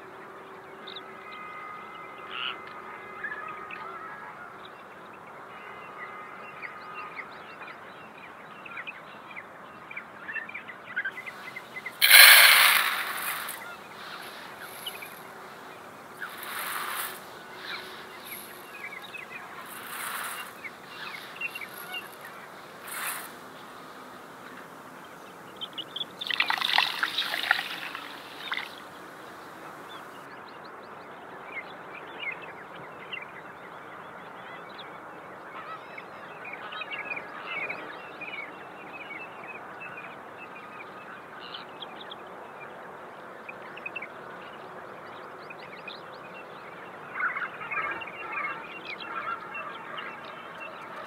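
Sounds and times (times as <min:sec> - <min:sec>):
birds calling: 0:11.2 - 0:30.3.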